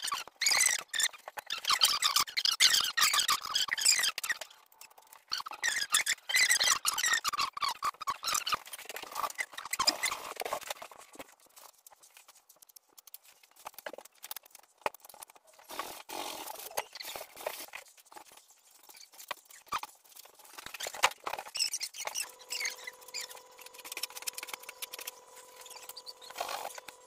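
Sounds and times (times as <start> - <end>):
hand rubbing plaster ceiling: 8.6 - 27.0.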